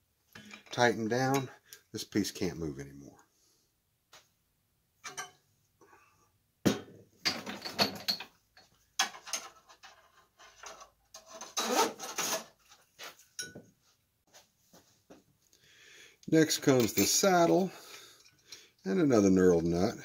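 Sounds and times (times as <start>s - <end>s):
tools scraping and rattling: 5.0s - 5.4s, 7.2s - 13.6s, 16.6s - 18.6s.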